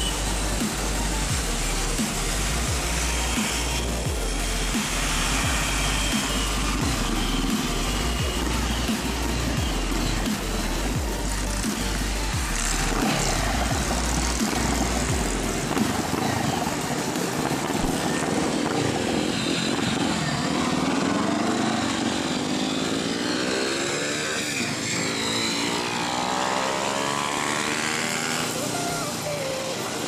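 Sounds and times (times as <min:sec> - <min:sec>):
motorcycle engine accelerating: 0:00.0 - 0:28.8
wind noise on microphone: 0:12.4 - 0:21.1.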